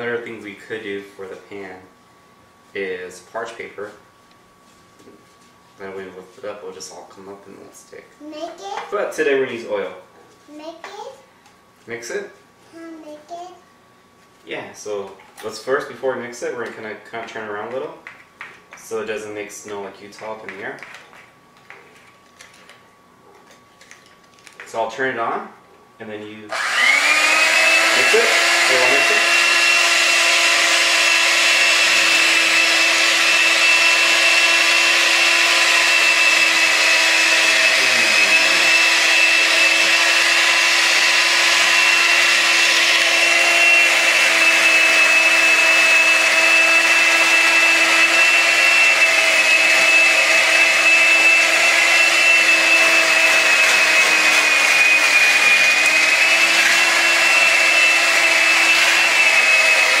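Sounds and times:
electric hand mixer whining: 26.5s - 60.0s.

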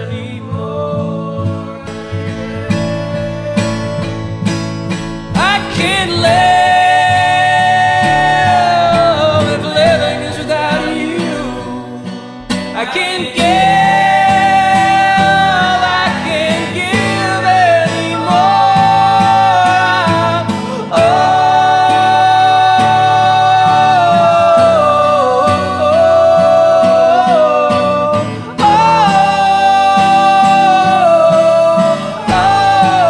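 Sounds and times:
acoustic guitar strumming: 0.0s - 33.0s
person singing long notes: 0.0s - 33.0s.

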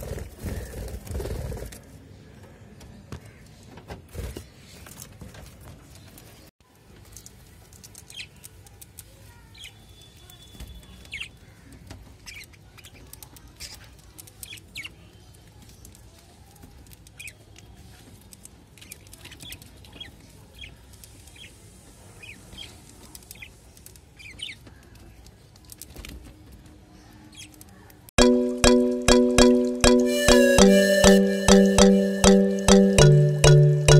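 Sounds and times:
whistled bird notes: 29.9s - 33.4s.

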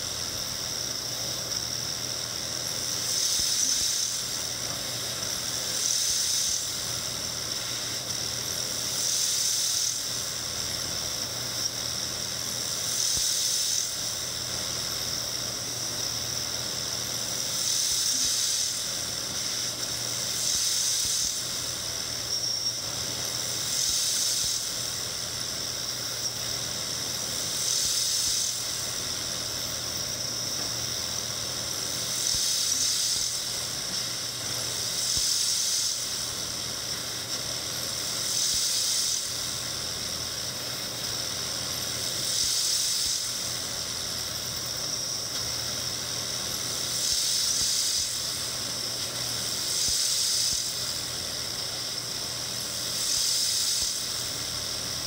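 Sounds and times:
coolant nozzles hissing: 0.0s - 55.0s
high squealing tapping whine: 13.2s - 42.0s.

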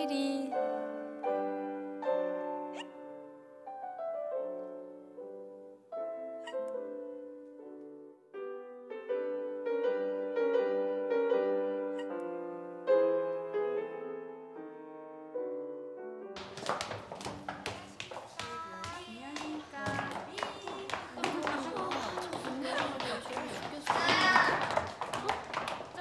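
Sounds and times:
light piano melody: 0.0s - 25.0s.

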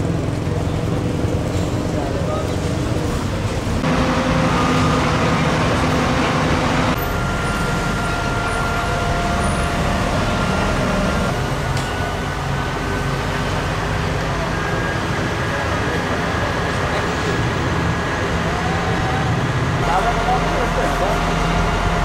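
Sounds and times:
truck engine running: 0.0s - 22.0s
faint high whine: 6.9s - 13.0s.

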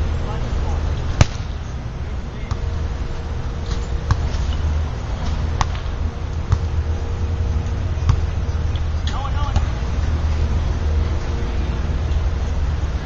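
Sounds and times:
volleyball being struck: 1.2s - 1.5s, 4.0s - 4.5s, 5.2s - 5.9s, 6.5s - 6.8s, 8.0s - 8.4s.

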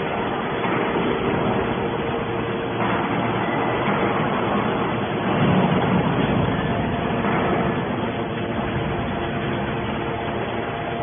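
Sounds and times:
faint constant hum: 0.0s - 11.0s
scrap metal baler drone: 0.0s - 11.0s.

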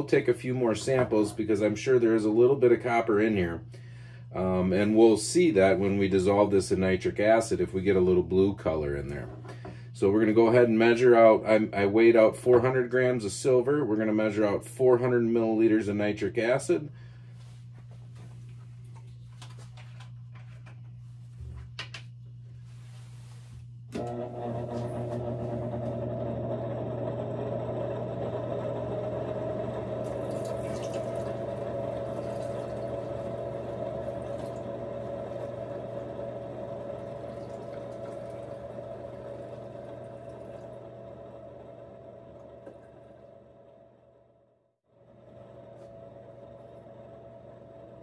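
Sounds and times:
liquid pouring into glass cylinder: 30.0s - 34.8s, 36.8s - 40.9s.

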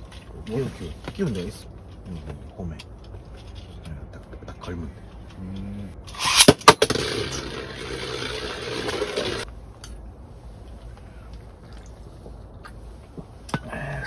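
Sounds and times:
launcher whirring pull: 6.0s - 9.4s
spinning top clacking on landing: 6.1s - 9.4s
top spinning and scraping plastic: 6.1s - 9.5s.

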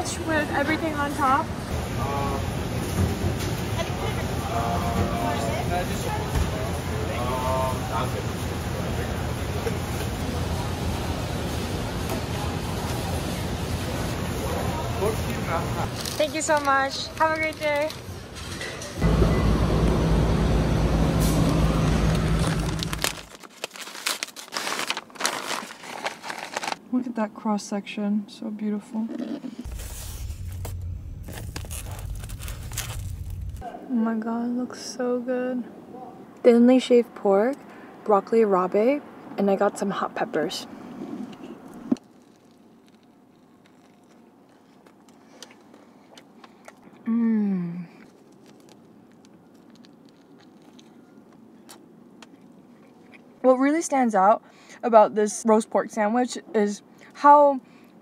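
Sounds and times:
vehicle engine and road noise: 18.9s - 23.3s, 29.6s - 33.6s
biting into a sandwich: 42.0s - 47.1s, 47.9s - 53.3s.

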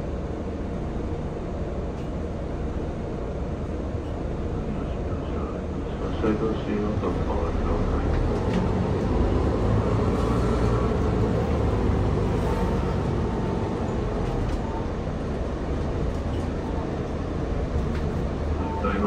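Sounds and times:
bus engine: 0.0s - 19.0s
road noise: 0.0s - 19.0s.

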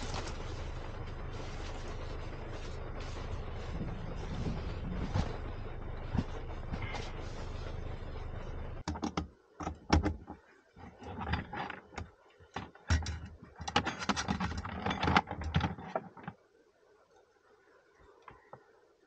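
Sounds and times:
objects being handled: 0.0s - 8.1s, 8.8s - 16.4s
vehicle running with low hum: 0.0s - 16.4s.

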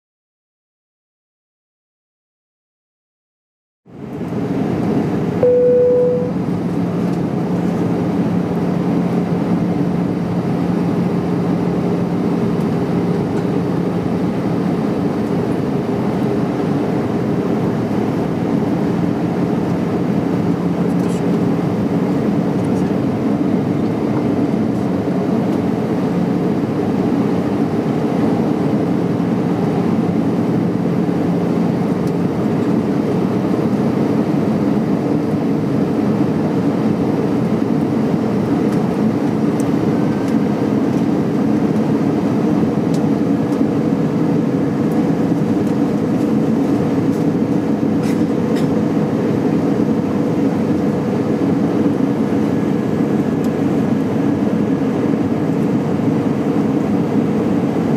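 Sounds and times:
jet engines droning: 3.9s - 57.9s
low hum: 5.3s - 9.1s
higher hum: 5.4s - 6.7s.

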